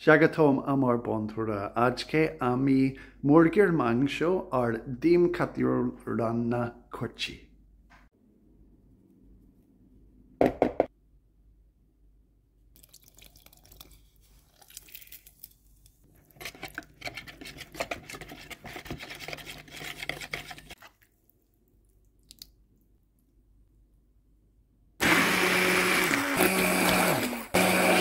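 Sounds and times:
fork whisking in a bowl: 16.1 - 21.2.

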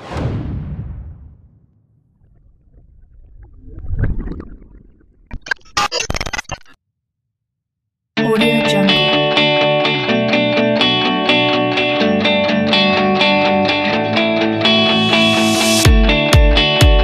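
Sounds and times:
glitchy crackles and clicks: 5.3 - 6.8.

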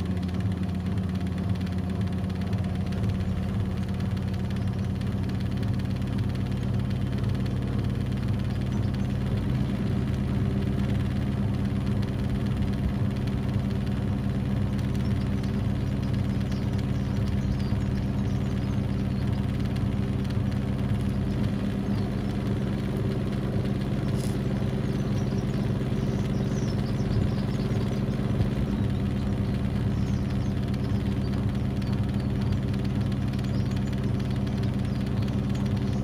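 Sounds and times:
washing machine spinning: 0.0 - 24.0.

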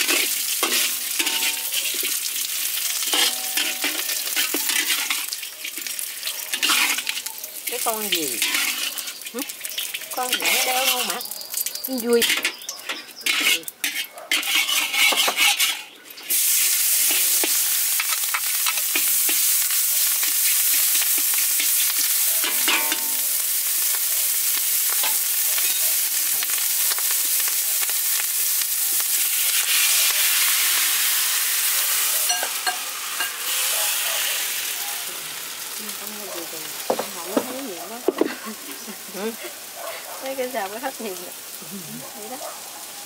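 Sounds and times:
metal spatula scraping wok: 0.0 - 7.3, 8.0 - 11.5, 12.1 - 23.4
food sizzling in hot oil: 0.0 - 43.0.

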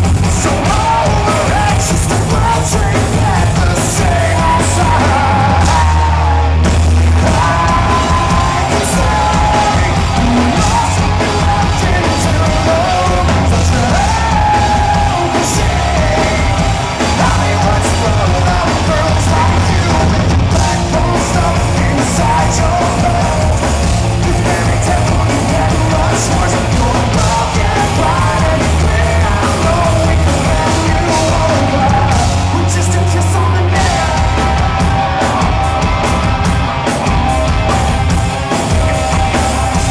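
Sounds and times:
bass guitar: 0.0 - 39.9
drums: 0.0 - 39.9
electric guitar: 0.0 - 39.9
man singing and shouting: 0.0 - 39.9.

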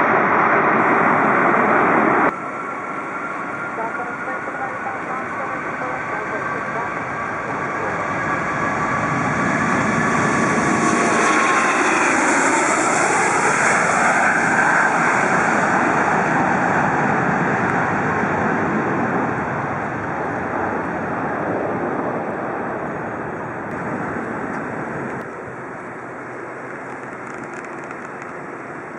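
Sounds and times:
jet engine roar at takeoff: 0.0 - 28.9.

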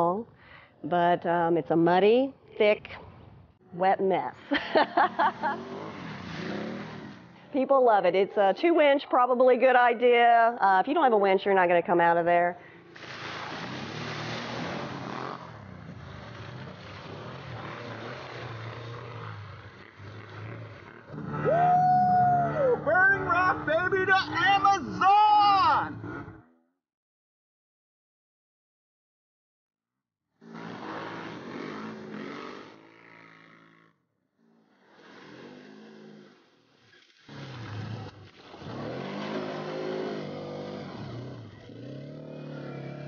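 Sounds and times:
engine revving: 4.4 - 7.6, 12.6 - 26.5, 30.4 - 43.0
tyres churning through mud: 4.4 - 7.6, 12.8 - 26.3, 30.5 - 33.5, 34.9 - 43.0
mud and water splash: 12.8 - 18.8, 37.0 - 43.0.

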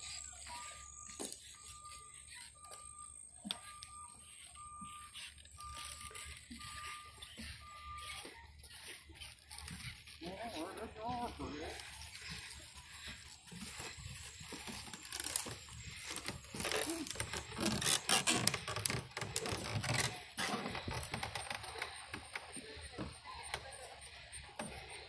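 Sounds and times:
footsteps on wooden planks: 3.8 - 23.2.

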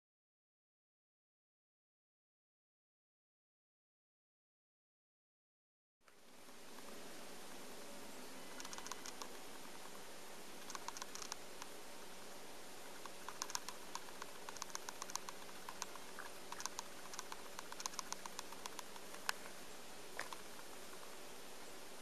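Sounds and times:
low steady hum: 6.0 - 22.0.

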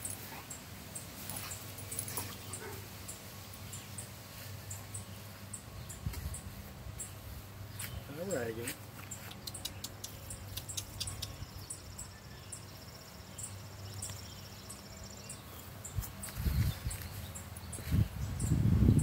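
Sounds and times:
faint high ticks: 9.2 - 11.4.

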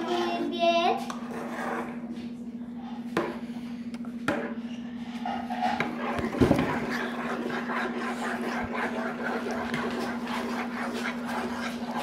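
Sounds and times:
steady low hum: 0.0 - 12.0
spoon stirring thick mixture: 4.9 - 12.0.

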